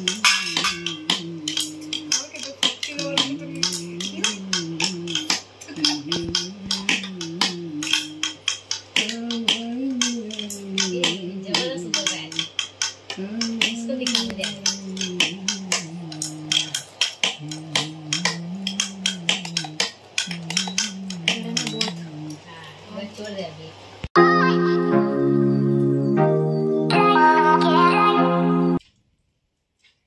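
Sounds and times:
chopsticks clinking on pot and bowls: 0.0 - 22.4
slow background music: 0.0 - 22.4, 24.2 - 28.8.

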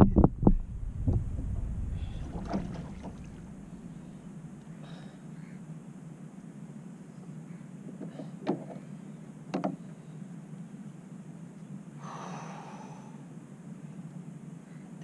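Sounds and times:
steady low rumble: 0.0 - 5.1.

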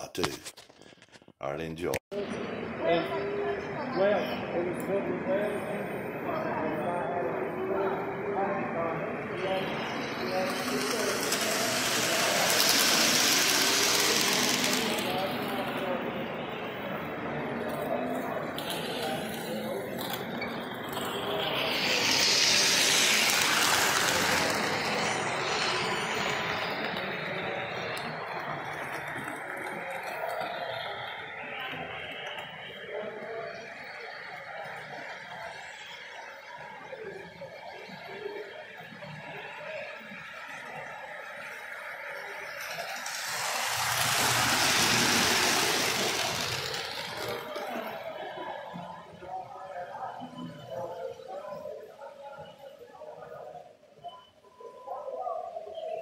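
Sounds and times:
model train wheels on track: 8.9 - 49.3.

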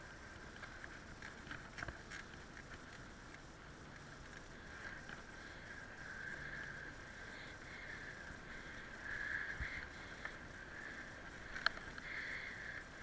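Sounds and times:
bicycle tyres hissing: 0.0 - 13.0
bike clicks and rattles: 0.4 - 5.5, 11.2 - 12.3.

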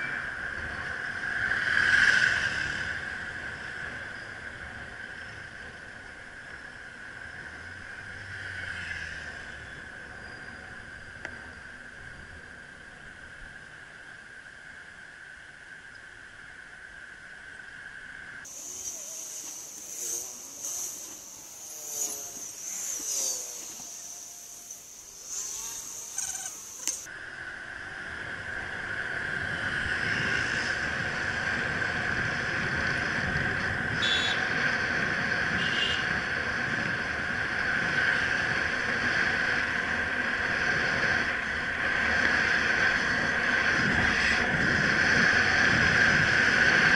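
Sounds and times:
traffic noise: 0.0 - 46.9
steady high whine: 9.2 - 46.9
wind noise: 14.6 - 46.9
sliding tones: 18.5 - 27.1.

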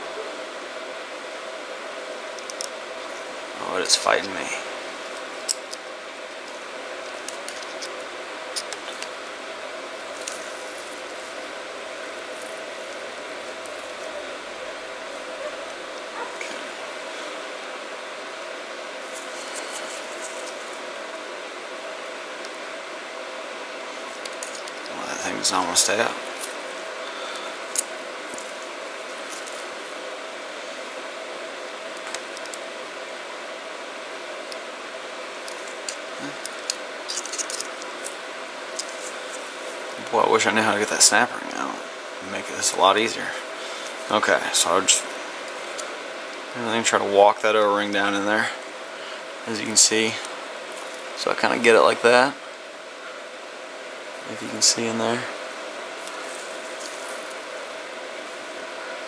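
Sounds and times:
steady hiss and hum: 0.0 - 59.0.

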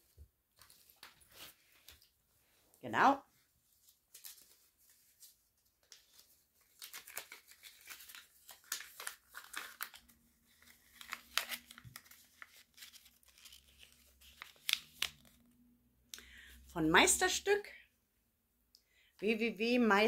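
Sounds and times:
packaging crinkling and rustling: 3.8 - 15.5.

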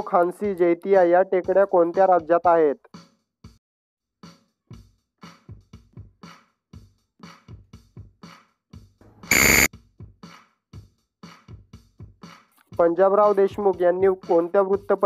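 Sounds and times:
ticking drum-machine beat: 0.0 - 2.3
electronic buzzer: 9.3 - 9.7.

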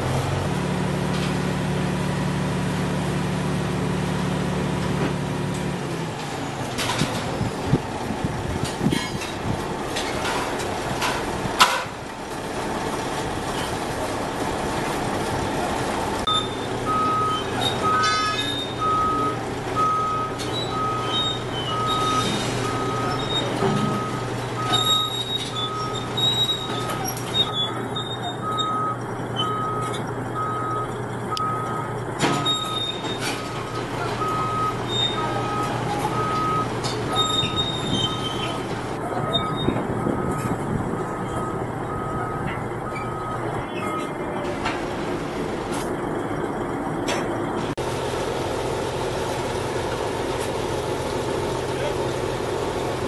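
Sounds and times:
heavy diesel engine running: 0.0 - 53.0
reversing alarm beeping: 16.3 - 33.3, 34.2 - 44.2.

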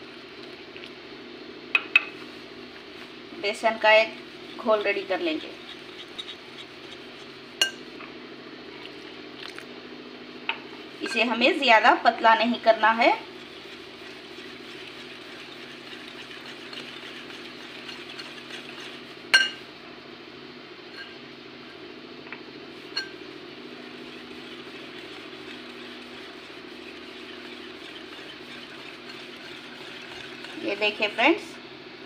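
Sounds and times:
steady low hum: 0.0 - 32.0
whisk clinking against glass bowl: 4.5 - 7.8, 13.1 - 19.6, 22.9 - 31.2.

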